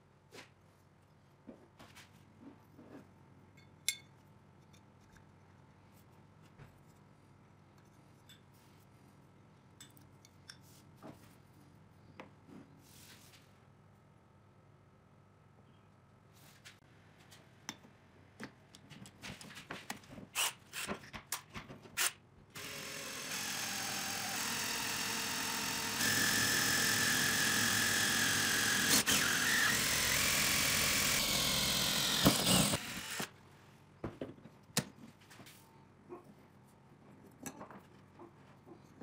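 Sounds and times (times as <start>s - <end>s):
electric drill drilling steel: 22.6s - 33.3s.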